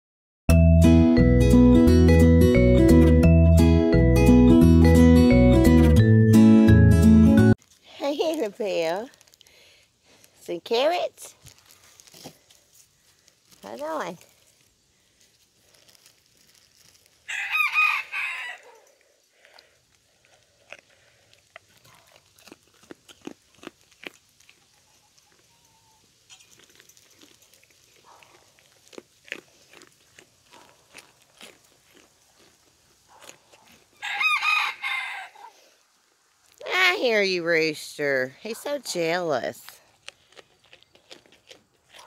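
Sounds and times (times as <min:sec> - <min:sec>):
goat crunching carrots: 0:07.6 - 0:35.7, 0:36.4 - 0:42.0
rooster crowing: 0:17.3 - 0:18.9, 0:34.0 - 0:35.6.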